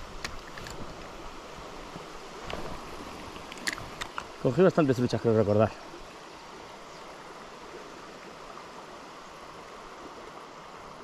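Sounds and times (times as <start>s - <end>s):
river water flowing: 0.0s - 11.0s.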